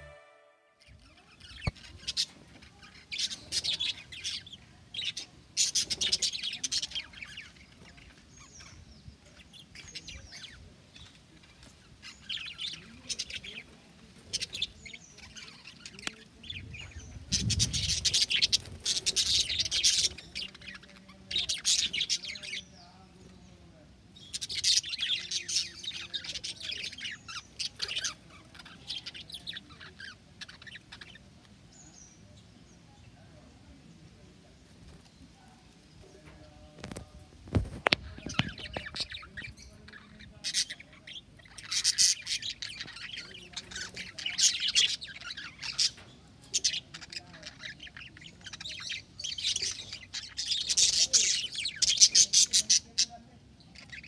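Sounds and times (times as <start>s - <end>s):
budgerigars chirping: 38.2s - 54.0s.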